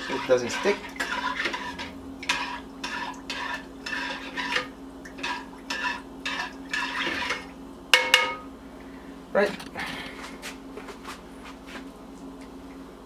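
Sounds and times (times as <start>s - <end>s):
spoon stirring rice in a saucepan: 0.0s - 8.4s.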